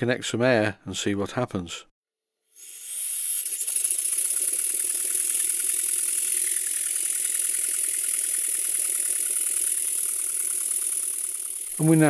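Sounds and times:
model steam engine exhaust beats: 0:02.6 - 0:12.0.

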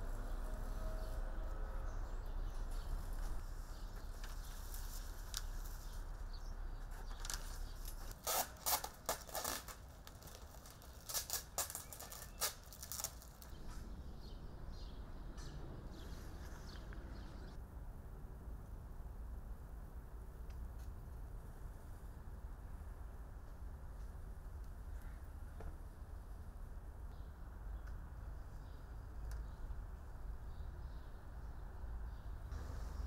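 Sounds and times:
paper crackling and rustling: 0:06.9 - 0:13.6.

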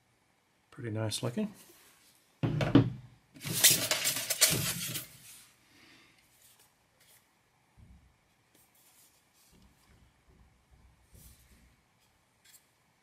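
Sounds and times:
faint handling sounds: 0:03.4 - 0:07.4, 0:08.2 - 0:10.3, 0:11.0 - 0:13.0.

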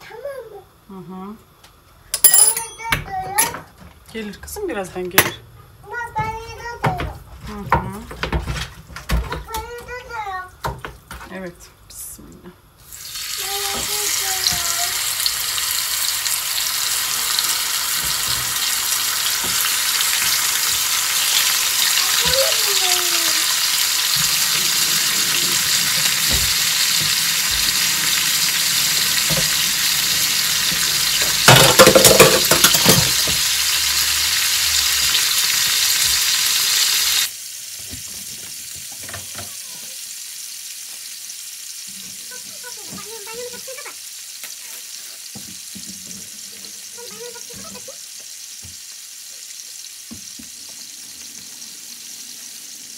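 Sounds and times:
food sizzling in a pan: 0:04.2 - 0:52.9
stirring clatter: 0:29.2 - 0:33.2.

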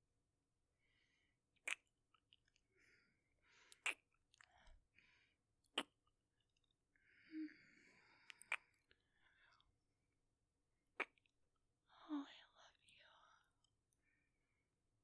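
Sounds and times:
breathy mouth sounds: 0:01.6 - 0:01.9, 0:03.5 - 0:05.1, 0:05.7 - 0:09.7, 0:11.0 - 0:11.3
lip-smacking kisses: 0:01.6 - 0:01.9, 0:03.8 - 0:04.5, 0:08.3 - 0:08.8, 0:11.0 - 0:11.3.

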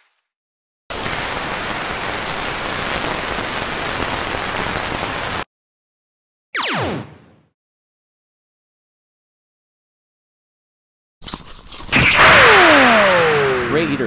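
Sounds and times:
downward-sliding tone: 0:12.0 - 0:14.0.

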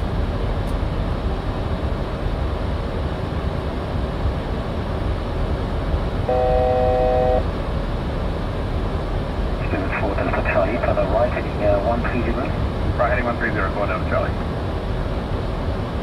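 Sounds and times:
rumble and rush of air in cockpit: 0:00.0 - 0:16.0
electronic cockpit alert tone: 0:06.3 - 0:07.5.

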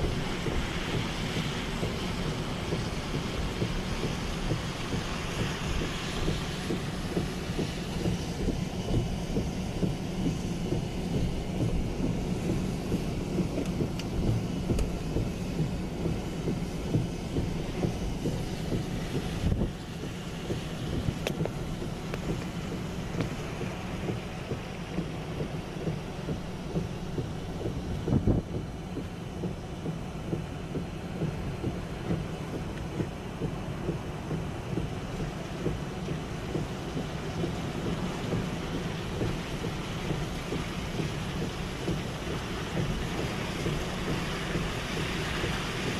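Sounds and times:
driving rain: 0:00.0 - 0:45.9
road and wind noise in car: 0:00.0 - 0:45.9.

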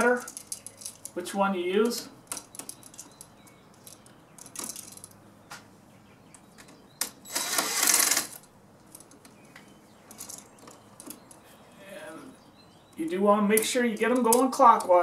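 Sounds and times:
light metal clicks and clinks: 0:00.0 - 0:01.2, 0:01.8 - 0:05.2
cordless drill running: 0:07.3 - 0:08.3.

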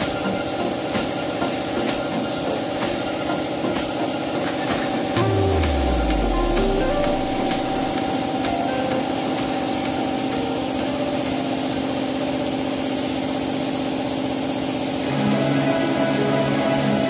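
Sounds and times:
steady low hum: 0:05.2 - 0:08.2.

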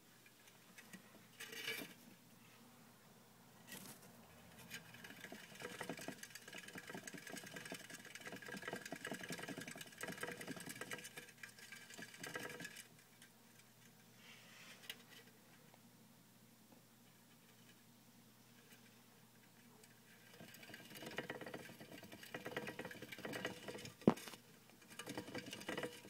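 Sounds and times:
hamster wheel rattling: 0:04.5 - 0:13.8, 0:18.6 - 0:26.0.

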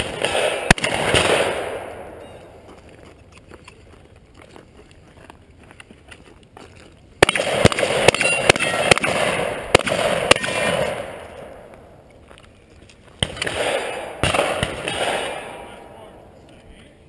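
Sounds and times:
shotgun blasts echoing: 0:00.0 - 0:02.2, 0:07.2 - 0:11.7, 0:13.2 - 0:16.2.

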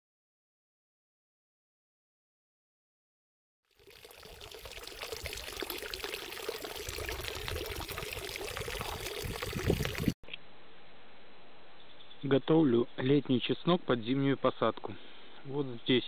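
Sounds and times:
running water: 0:03.7 - 0:10.2.

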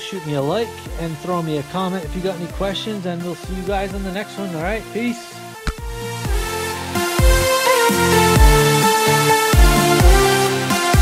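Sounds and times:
electronic music with kick drum: 0:05.6 - 0:11.0.

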